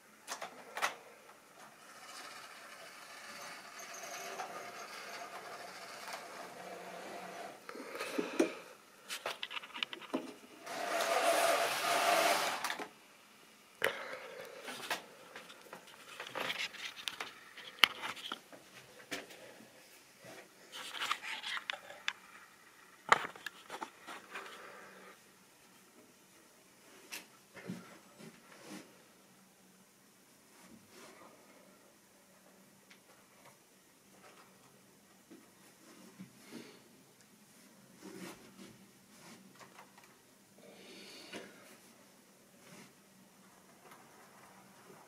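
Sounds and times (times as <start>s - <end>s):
model train motor whirr: 1.6s - 7.6s, 10.6s - 12.8s.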